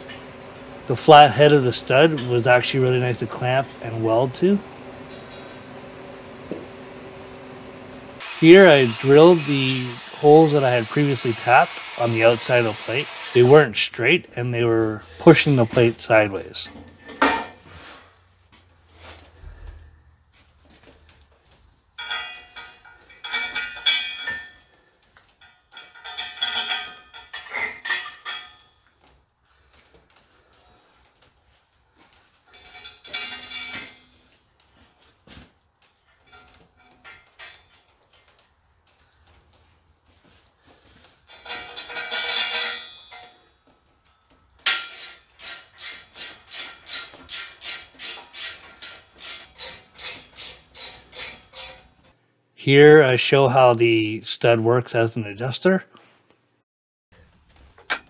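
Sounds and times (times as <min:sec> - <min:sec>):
ratchet wrench rasping: 0:08.2 - 0:13.6, 0:44.6 - 0:51.9
metal clanking on steel plate: 0:22.0 - 0:24.6, 0:25.4 - 0:28.6, 0:32.5 - 0:34.1, 0:41.3 - 0:43.4.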